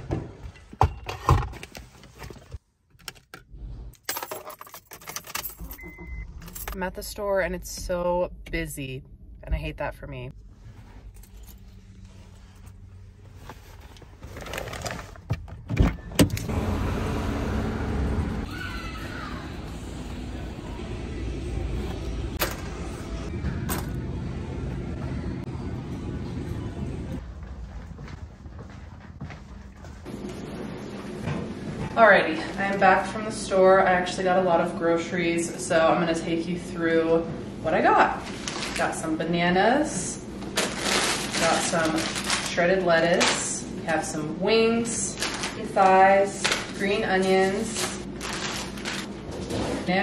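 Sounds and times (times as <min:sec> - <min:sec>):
car keys jingling: 0:04.0 - 0:06.8
shopping cart rolling: 0:40.6 - 0:43.6, 0:45.0 - 0:50.0.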